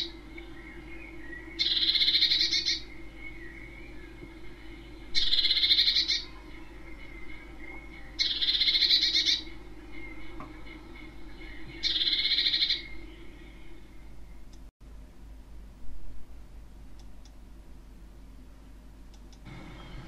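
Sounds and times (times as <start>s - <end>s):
songbird trilling: 0.0s - 13.7s.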